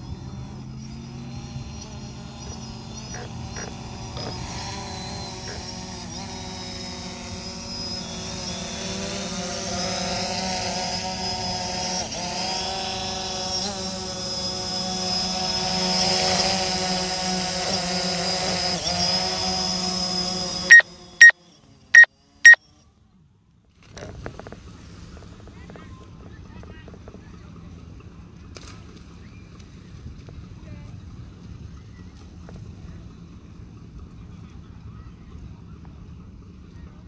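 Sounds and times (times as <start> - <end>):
drone propeller whine: 0.0 - 22.6.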